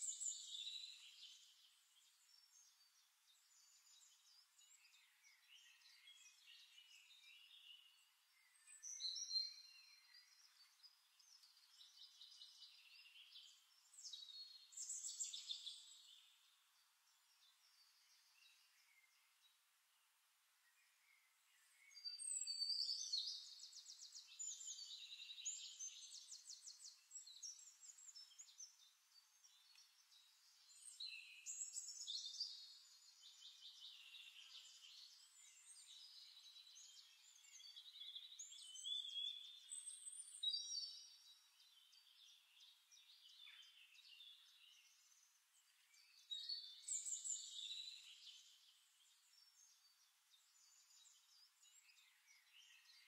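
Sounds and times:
faint bird trilling song: 0:00.0 - 0:53.0.

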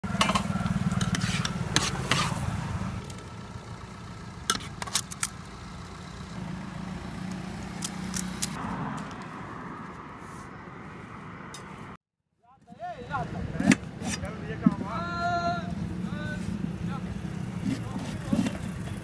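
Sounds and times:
engine idling: 0:00.0 - 0:08.5.

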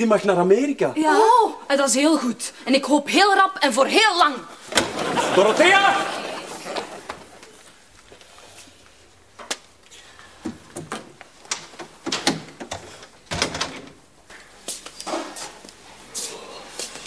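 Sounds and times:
knocks and clicks of people moving: 0:06.7 - 0:17.0
door: 0:10.4 - 0:14.0.

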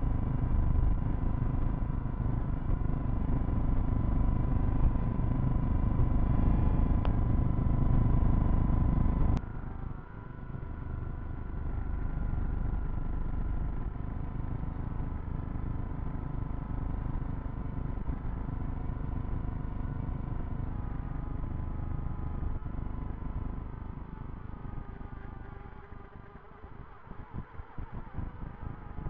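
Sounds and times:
quadcopter motors buzzing: 0:09.4 - 0:29.0.

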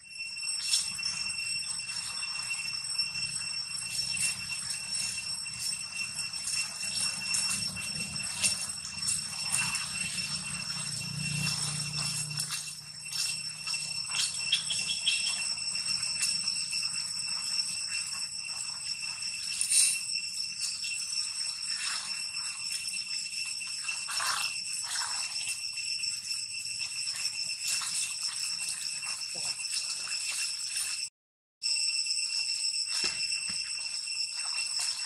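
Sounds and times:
high-pitched ringing drone: 0:00.0 - 0:35.0.

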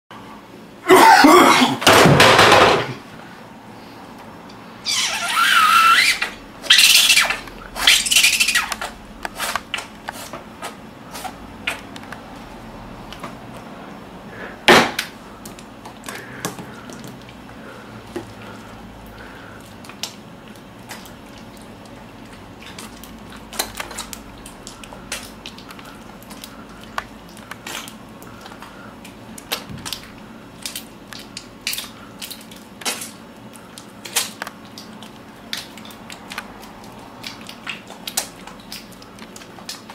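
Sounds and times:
creamy hands rubbing together: 0:04.9 - 0:10.3.

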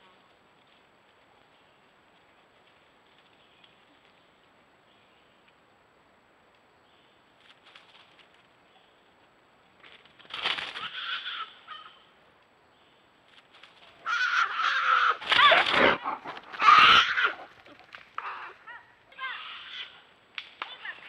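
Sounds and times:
bear cub bawling in distress: 0:14.0 - 0:20.0.

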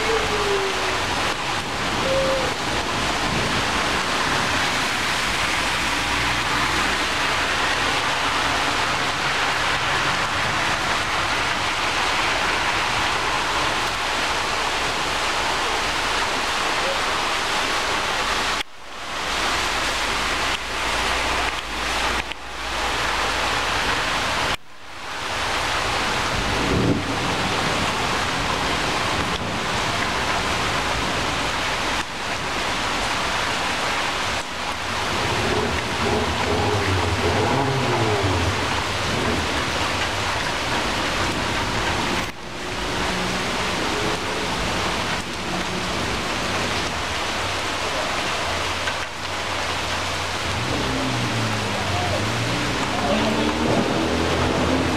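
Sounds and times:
heavy rain on leaves and ground: 0:00.0 - 0:54.9
low rumble: 0:34.9 - 0:40.1.

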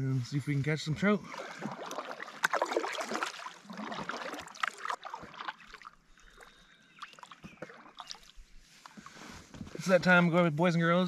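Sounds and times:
paddle splashing in water: 0:01.2 - 0:09.7
water trickling off paddle: 0:01.2 - 0:09.9.

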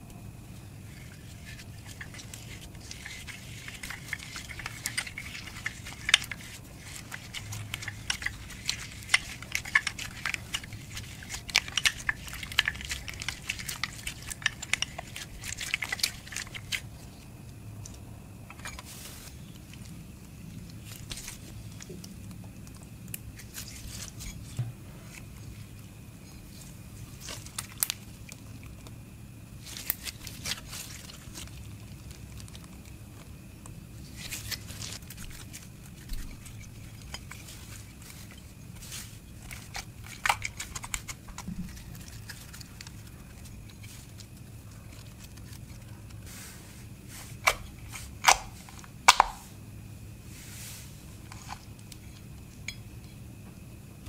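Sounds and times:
slime squishing and crackling: 0:00.8 - 0:17.2.

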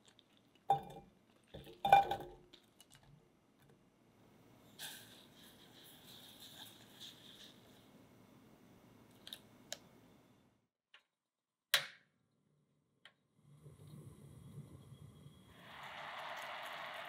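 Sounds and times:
sugar pouring with soft hiss: 0:04.7 - 0:08.0, 0:13.6 - 0:17.0.

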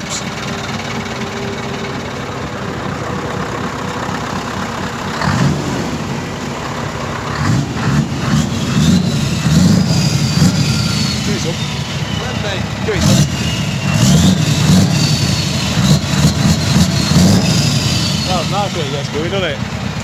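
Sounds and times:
diesel lorry engine revving: 0:00.0 - 0:20.0.

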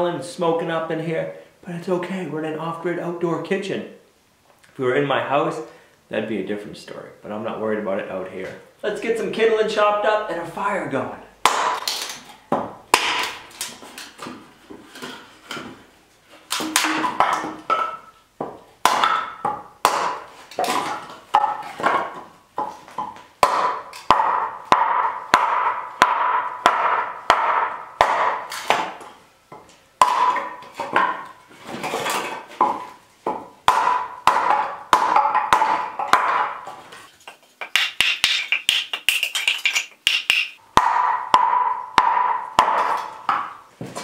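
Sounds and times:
hatchet chopping wood: 0:11.4 - 0:15.7, 0:16.5 - 0:31.4, 0:32.0 - 0:36.8, 0:37.6 - 0:39.1, 0:40.1 - 0:43.6.

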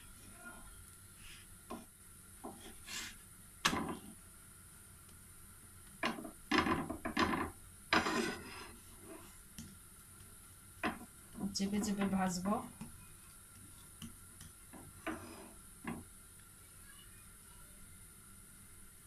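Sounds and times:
wooden spatula scraping flatbread: 0:07.9 - 0:09.4, 0:14.8 - 0:15.6.

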